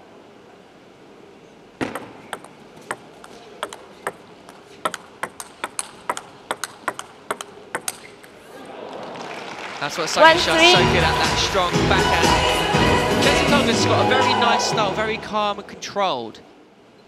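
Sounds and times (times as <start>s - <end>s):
table tennis ball clicks: 1.8s - 8.4s.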